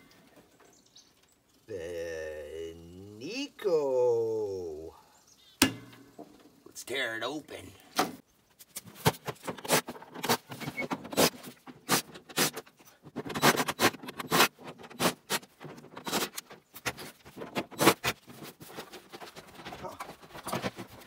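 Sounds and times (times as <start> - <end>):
plastic casing knocks and scrapes: 8.8 - 21.0.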